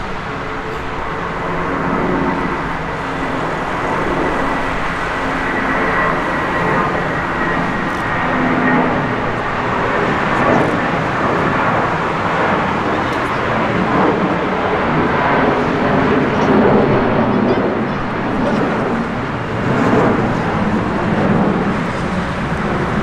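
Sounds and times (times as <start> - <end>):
jet engines rushing: 0.0 - 23.0.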